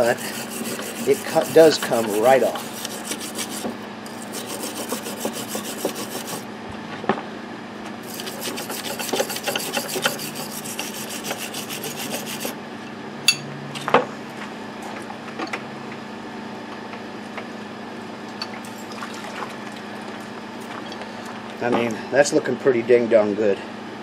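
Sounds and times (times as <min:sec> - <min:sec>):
wire brush scrubbing steel: 0:00.0 - 0:06.4, 0:08.0 - 0:12.6.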